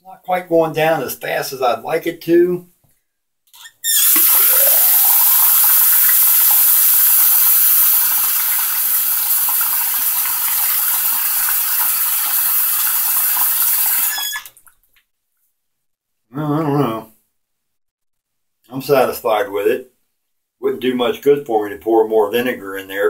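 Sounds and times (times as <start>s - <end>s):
faucet water running into drain: 3.9s - 14.7s.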